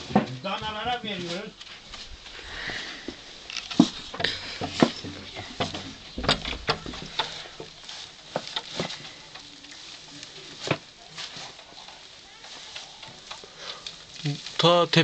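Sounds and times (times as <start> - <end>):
dry straw rustling and crackling: 0.0 - 15.0
sharp knocks: 5.6 - 7.3.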